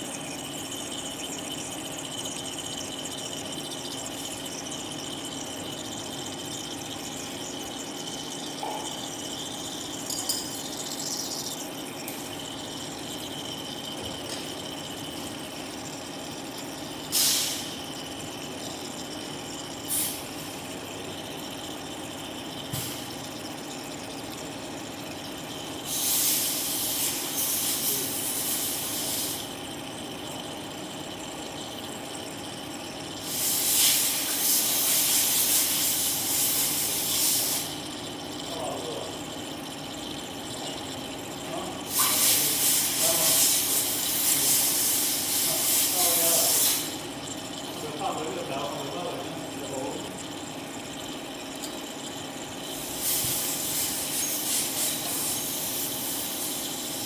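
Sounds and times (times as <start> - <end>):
electrical hum: 0.0 - 57.0
high-pitched machine whine: 0.0 - 57.0
hissing spray: 17.1 - 17.8, 25.9 - 29.5, 33.2 - 37.8, 41.9 - 47.0, 52.7 - 57.0.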